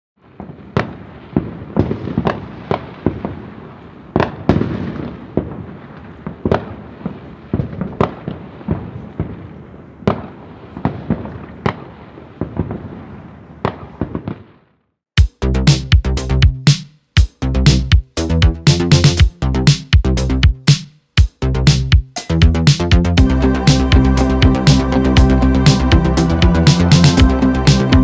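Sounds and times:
fireworks bangs: 0:00.2 - 0:14.8
fireworks rumble and crackle: 0:00.2 - 0:14.8.

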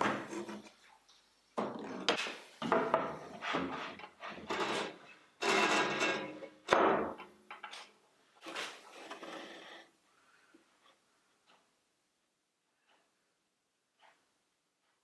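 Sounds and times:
board sliding scrapes: 0:08.4 - 0:09.9.

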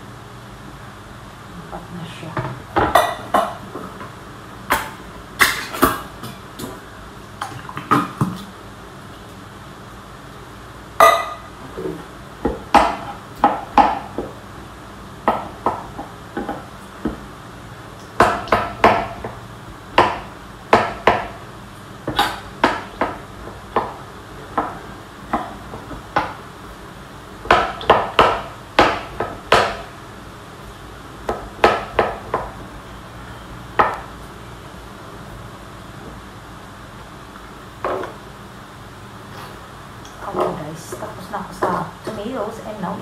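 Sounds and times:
knife chopping on cutting board: 0:18.2 - 0:19.4, 0:27.4 - 0:29.9, 0:31.3 - 0:32.5.

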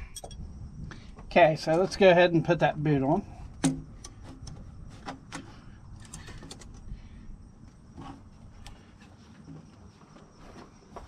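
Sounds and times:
low background rumble: 0:00.0 - 0:09.0
rubber hose handling sounds: 0:03.5 - 0:06.9, 0:07.6 - 0:10.7.

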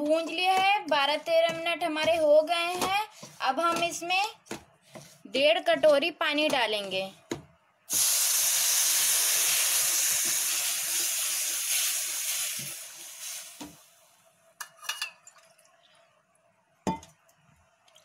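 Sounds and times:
water sizzling in hot pan: 0:07.9 - 0:14.0.

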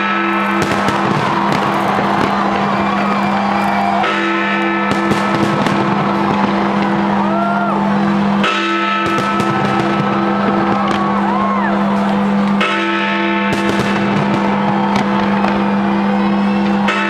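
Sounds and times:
fireworks bangs and crackles: 0:00.0 - 0:17.0
fireworks whistles: 0:00.3 - 0:04.1, 0:04.9 - 0:07.5.

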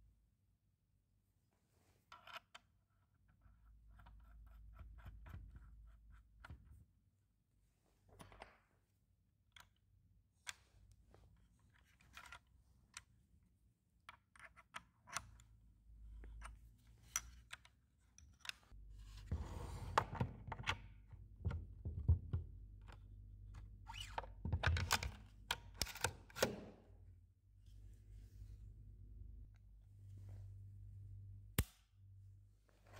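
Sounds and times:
metal and plastic parts clicking: 0:24.0 - 0:26.7.

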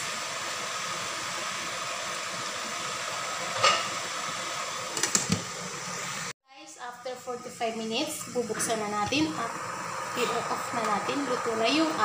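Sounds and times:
water boiling: 0:00.0 - 0:12.0
glass lid clinking: 0:03.6 - 0:03.9.

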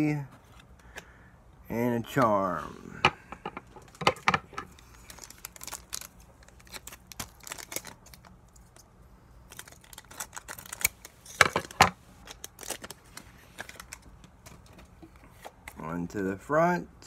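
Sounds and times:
foil wrapper crinkling: 0:04.6 - 0:08.9, 0:09.5 - 0:14.7.

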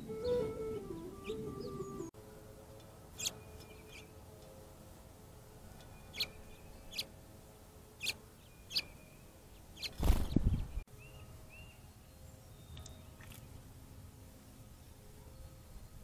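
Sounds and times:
songbird chip calls: 0:05.8 - 0:07.1, 0:08.0 - 0:09.2.

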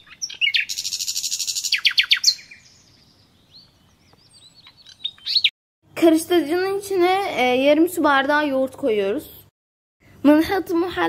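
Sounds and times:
small bird singing buzzy trill: 0:00.0 - 0:05.5.

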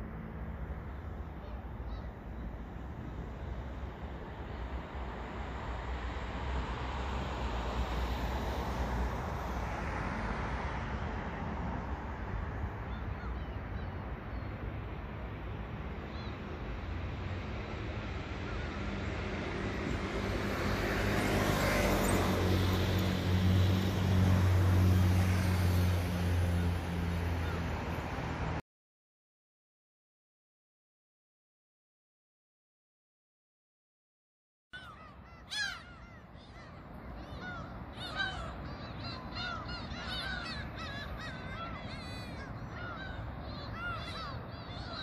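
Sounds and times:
traffic hum: 0:00.0 - 0:28.6, 0:34.8 - 0:45.0.

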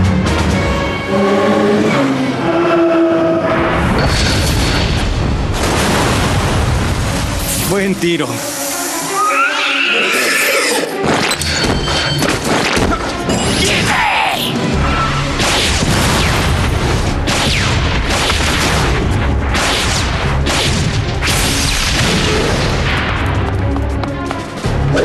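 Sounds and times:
dramatic action music: 0:00.0 - 0:25.0
cartoon blasts and booming impacts: 0:03.7 - 0:07.5, 0:15.3 - 0:23.3.

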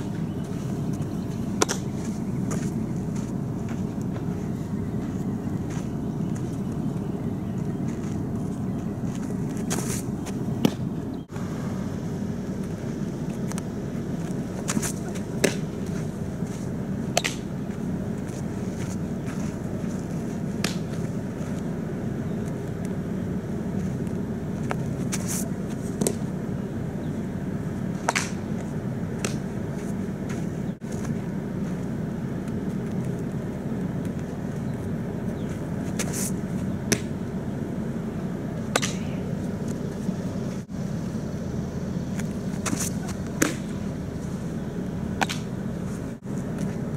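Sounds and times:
low background rumble: 0:00.0 - 0:46.9
ball smacking into mitt: 0:10.6 - 0:10.9, 0:14.7 - 0:15.7, 0:20.6 - 0:21.0, 0:28.1 - 0:28.4, 0:38.8 - 0:39.1, 0:43.0 - 0:43.7, 0:45.2 - 0:45.5.

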